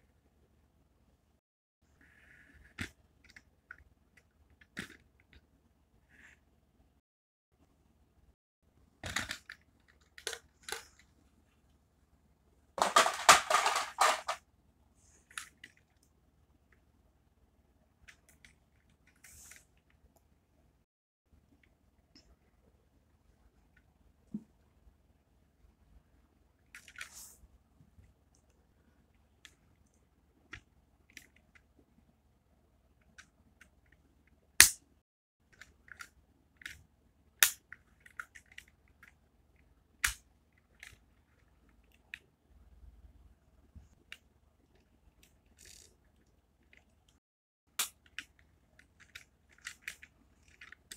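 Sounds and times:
loud sharp snaps: 34.6s - 34.8s.

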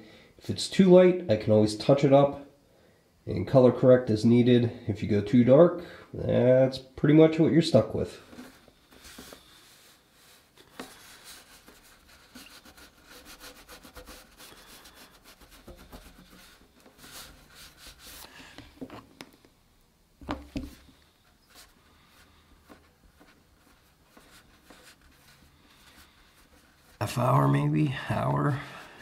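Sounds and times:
fingertip rubbing on wood: 10.8s - 18.3s, 21.4s - 27.0s.

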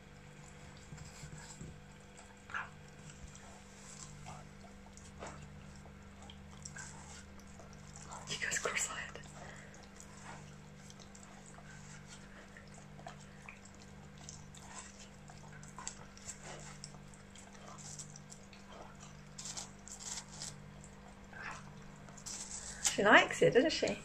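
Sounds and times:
low steady hum: 0.0s - 24.0s
puppy licking and biting watermelon: 0.0s - 24.0s.

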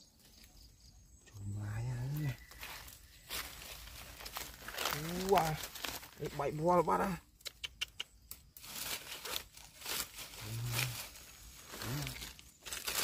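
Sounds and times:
dry leaves crackling and rustling: 1.9s - 7.2s, 8.5s - 13.0s
short low voice sound: 11.8s - 12.2s.

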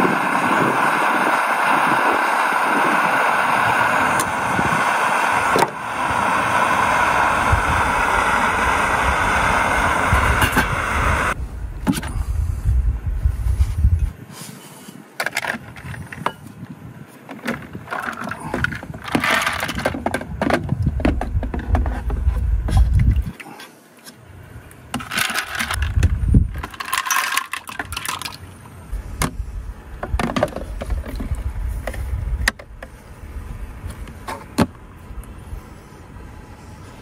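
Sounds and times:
ice cubes clinking into metal mug: 26.6s - 28.4s.

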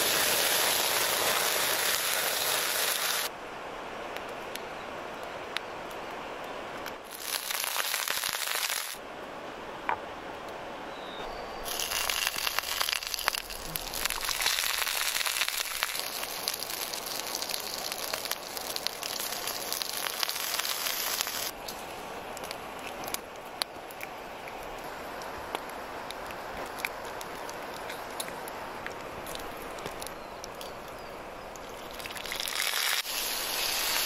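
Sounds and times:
meat sizzling on hot stone: 0.0s - 3.3s, 7.1s - 9.0s, 11.7s - 21.5s, 31.9s - 34.0s.

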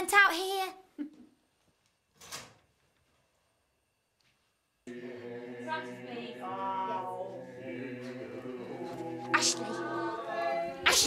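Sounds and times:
choir singing sustained chords: 4.9s - 11.0s.

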